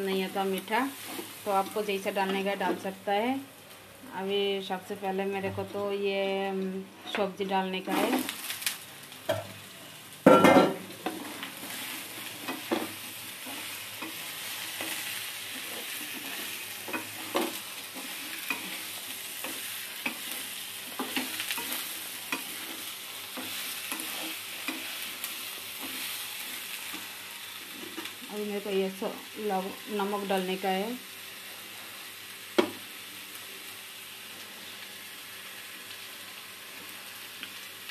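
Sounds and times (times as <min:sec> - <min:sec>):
food sizzling in oil: 0:00.0 - 0:06.2, 0:07.3 - 0:37.9
spatula scraping pan: 0:11.0 - 0:28.2.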